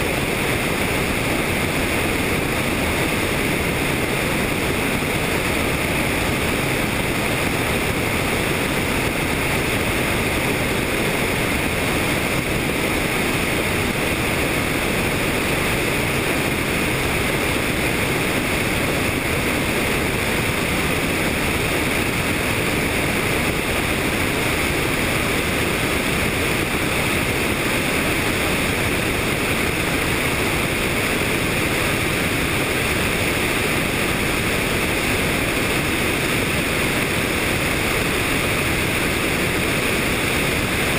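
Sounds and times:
helicopter in steady flight: 0.0 - 40.9.

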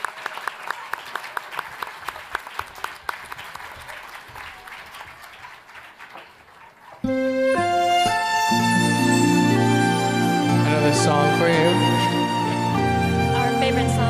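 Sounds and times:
audience applause: 0.0 - 7.1
music: 7.0 - 14.0.

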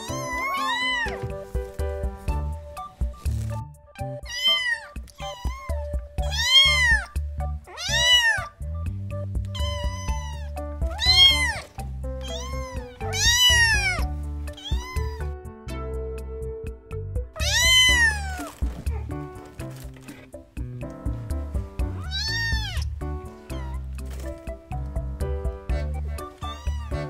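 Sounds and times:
kittens meowing: 0.0 - 1.3, 4.2 - 8.6, 9.5 - 15.3, 17.4 - 19.2, 21.5 - 23.9, 26.1 - 27.0
background music with bass line: 5.0 - 27.0.

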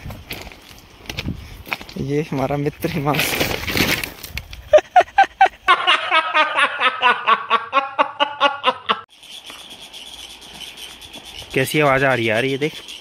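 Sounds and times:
person laughing: 4.6 - 9.1
high-pitched insect chorus: 9.1 - 13.0.

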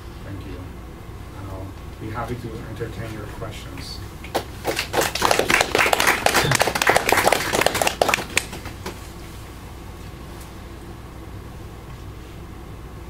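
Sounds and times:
people clapping: 4.2 - 9.0.

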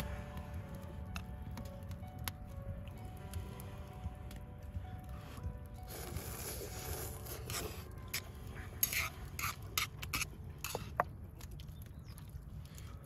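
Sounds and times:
chopsticks scraping a frying pan: 5.9 - 11.1.

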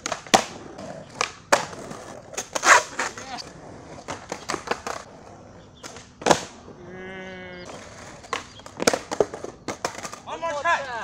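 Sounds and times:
skateboard clacking on paving: 0.0 - 6.7, 7.6 - 11.0
person crying out: 6.8 - 7.7.

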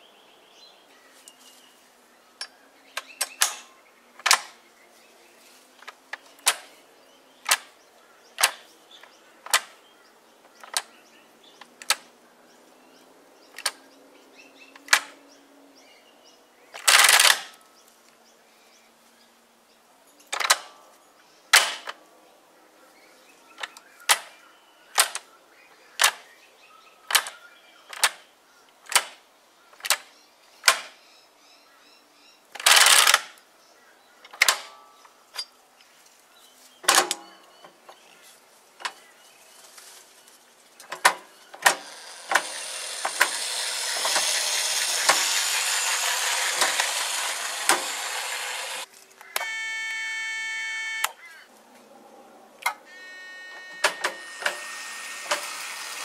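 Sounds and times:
short buzzing tones: 41.7 - 51.2, 52.8 - 56.0.

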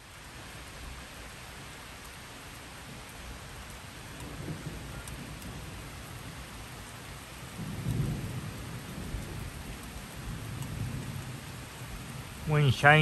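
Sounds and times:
distant thunder rumbling: 7.5 - 13.0
steady storm hiss: 7.5 - 13.0.

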